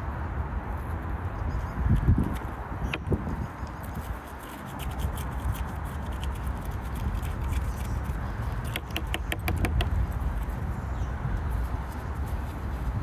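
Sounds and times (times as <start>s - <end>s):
pepper scraping and crackling: 2.3s - 10.5s.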